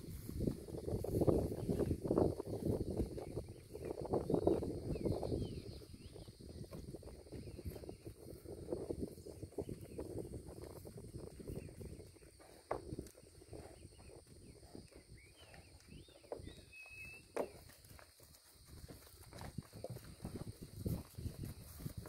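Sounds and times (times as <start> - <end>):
cattle hooves on concrete: 9.7 - 22.0.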